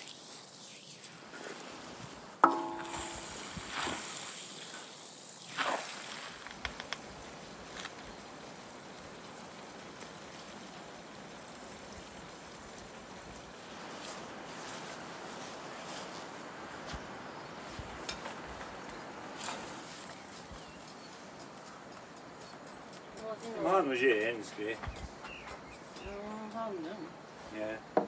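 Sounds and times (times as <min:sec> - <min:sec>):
food sizzling on griddle: 0:00.0 - 0:15.2, 0:18.9 - 0:20.7
ringing knock on pan: 0:02.4 - 0:03.4.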